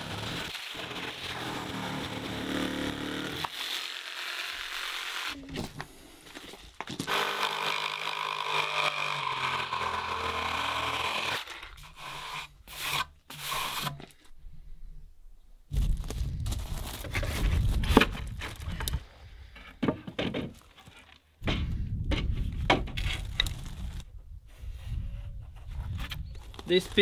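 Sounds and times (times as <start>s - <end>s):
jigsaw sawing through wood: 0.0s - 5.4s, 7.1s - 12.5s.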